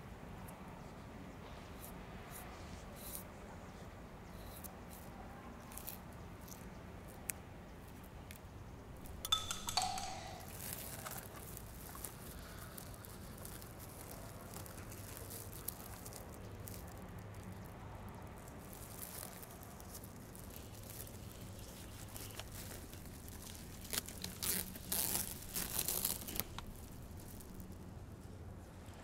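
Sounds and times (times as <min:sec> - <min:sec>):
paper crackling as peeled: 0:10.7 - 0:17.7, 0:18.3 - 0:27.9.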